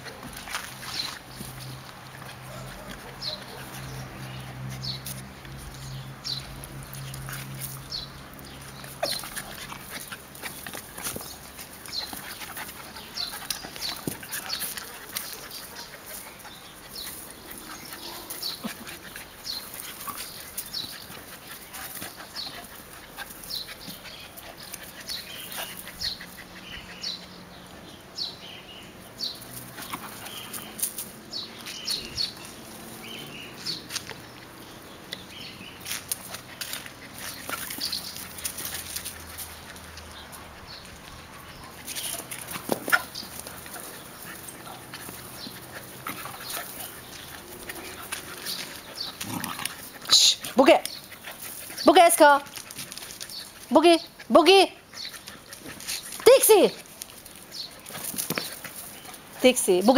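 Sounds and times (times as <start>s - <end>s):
scuffling in loose dirt: 0.0s - 27.2s, 29.2s - 59.9s
puppies growling: 36.3s - 50.2s.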